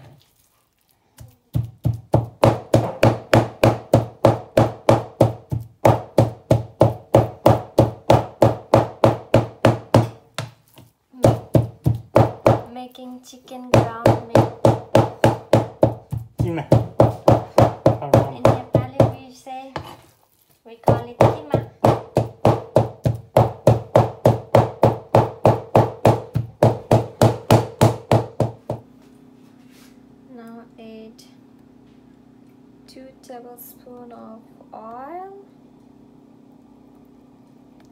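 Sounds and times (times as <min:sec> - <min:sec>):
knife chopping on plastic board: 0:01.2 - 0:10.6, 0:11.2 - 0:12.7, 0:13.7 - 0:20.0, 0:20.8 - 0:28.8.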